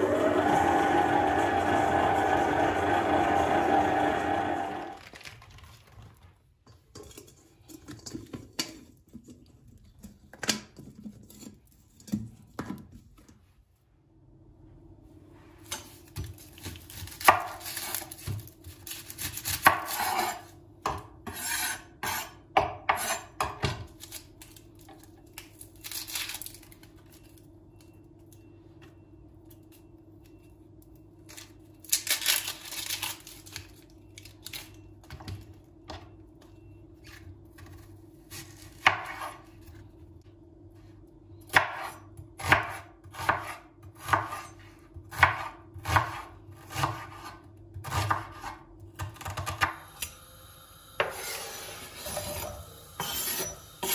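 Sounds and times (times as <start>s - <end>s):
knife slicing onion: 15.8s - 24.3s, 37.6s - 39.7s, 41.5s - 49.7s.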